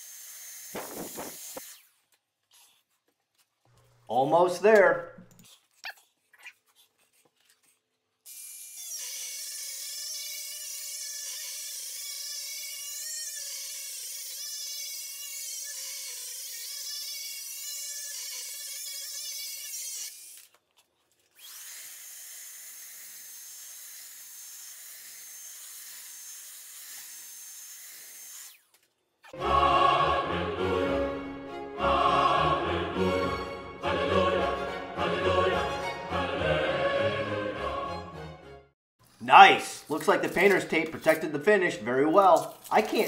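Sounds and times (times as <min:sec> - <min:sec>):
rotary tool sanding wood: 0:00.0 - 0:02.1, 0:21.4 - 0:28.7.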